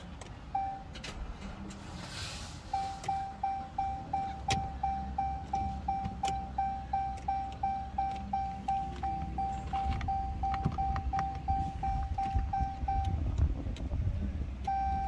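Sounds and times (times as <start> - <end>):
low steady rumble: 0.0 - 15.0
car warning chime beeping: 0.4 - 1.2, 2.6 - 13.4, 14.6 - 15.0.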